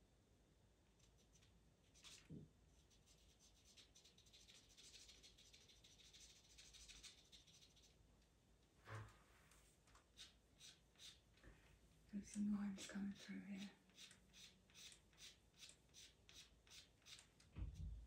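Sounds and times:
pencil scratching on paper: 0:01.1 - 0:08.0, 0:10.1 - 0:11.2, 0:13.1 - 0:17.3.

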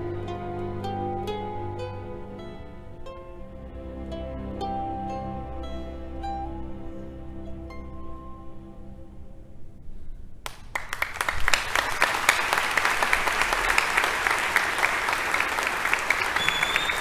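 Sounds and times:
audience applauding: 0:10.5 - 0:17.0.

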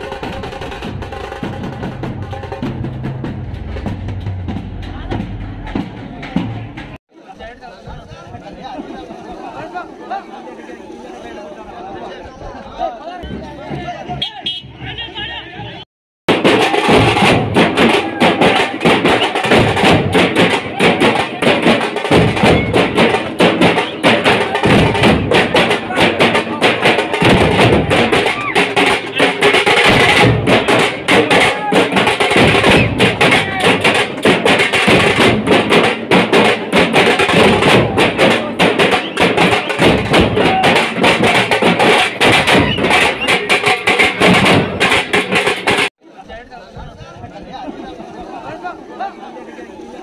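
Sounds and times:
drum band drumming: 0:00.0 - 0:07.0, 0:16.3 - 0:45.9
crowd voices: 0:00.0 - 0:15.8, 0:16.4 - 0:50.0.

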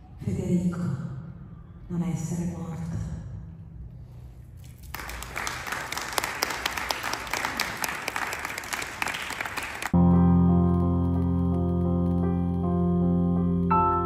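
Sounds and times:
audience applauding: 0:04.9 - 0:10.0
low keyboard chord: 0:10.0 - 0:14.0.

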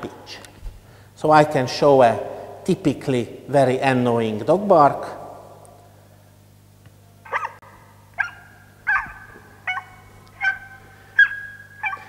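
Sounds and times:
steady low hum: 0:00.0 - 0:12.0
high-pitched dog barks: 0:07.3 - 0:07.6, 0:08.2 - 0:12.0.

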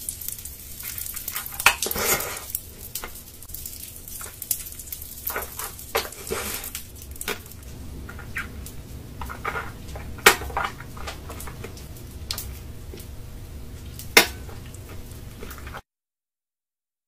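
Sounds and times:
crunchy candy being chewed: 0:00.0 - 0:13.1.

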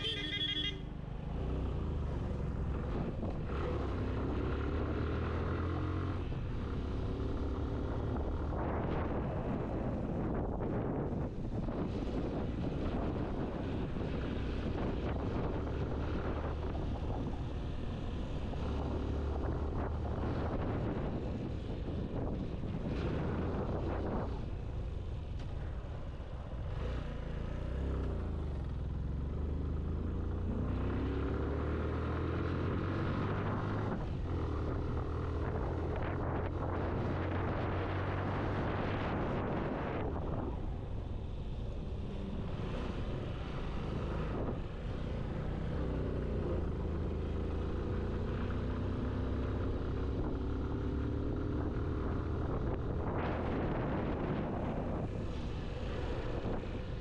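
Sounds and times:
motorcycle engine accelerating: 0:00.0 - 0:11.1, 0:26.7 - 0:40.4, 0:41.9 - 0:57.0
wind rushing over microphone: 0:01.2 - 0:57.0.

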